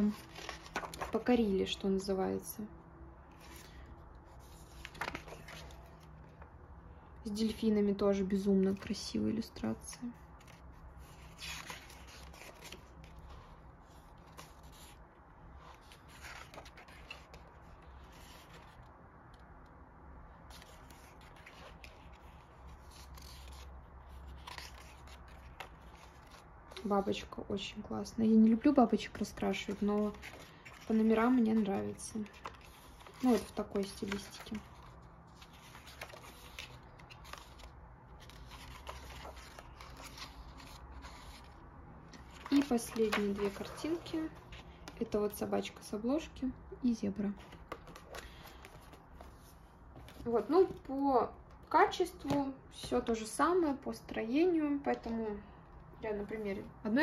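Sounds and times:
book pages turning: 0:00.0 - 0:01.8, 0:03.3 - 0:06.5, 0:08.7 - 0:19.4, 0:20.4 - 0:27.3, 0:28.9 - 0:45.8, 0:47.2 - 0:50.9.

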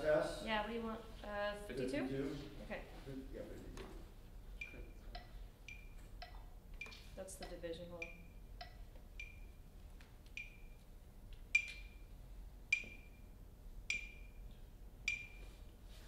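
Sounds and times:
metronome clicking: 0:04.6 - 0:09.5, 0:10.3 - 0:10.7, 0:11.5 - 0:12.0, 0:12.7 - 0:13.2, 0:13.9 - 0:14.4, 0:15.0 - 0:15.4.

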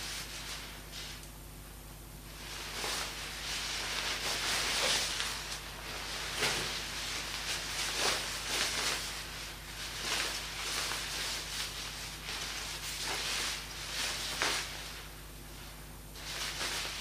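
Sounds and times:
steady low hum: 0:00.0 - 0:17.0
wood fire crackling and hissing: 0:00.0 - 0:17.0.

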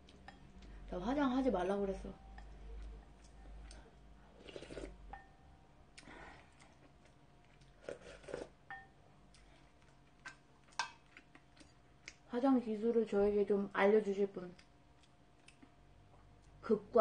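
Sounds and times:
person chewing: 0:02.7 - 0:05.0, 0:05.9 - 0:08.6, 0:09.2 - 0:12.2, 0:14.6 - 0:16.6.

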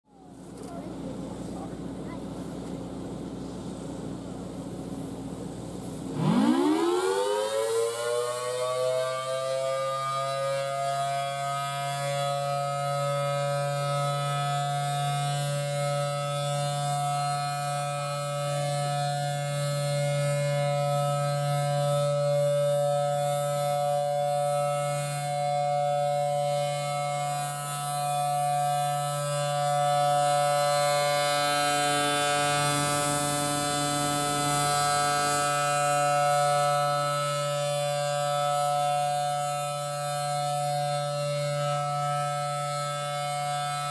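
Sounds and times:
steady low hum: 0:00.1 - 0:06.3
two-tone siren wail: 0:06.1 - 0:43.9.

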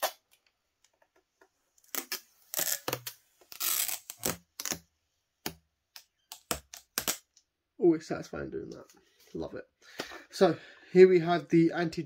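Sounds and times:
plastic film peeling rips: 0:01.8 - 0:04.9.

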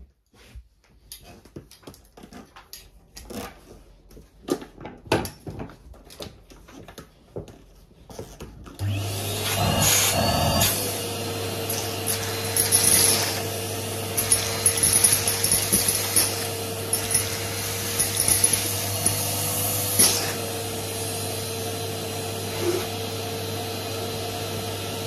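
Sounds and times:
vacuum hose and wand knocking: 0:04.1 - 0:21.0
vacuum cleaner motor whine: 0:08.8 - 0:25.0.

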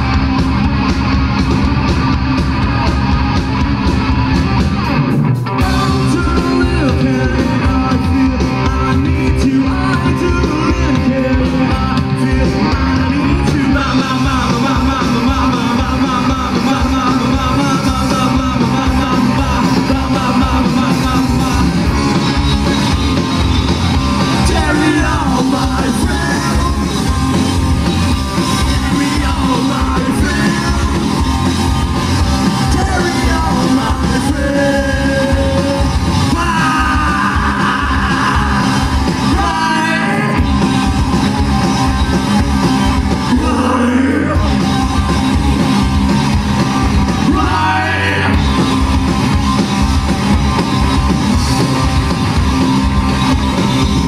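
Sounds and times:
bass guitar: 0:00.0 - 0:54.0
distorted electric guitar: 0:00.0 - 0:54.0
drum kit: 0:00.0 - 0:54.0.

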